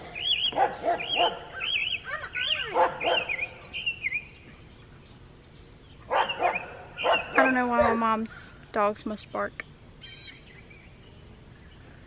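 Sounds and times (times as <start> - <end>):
dogs barking and yipping: 0.3 - 3.6, 6.1 - 8.4.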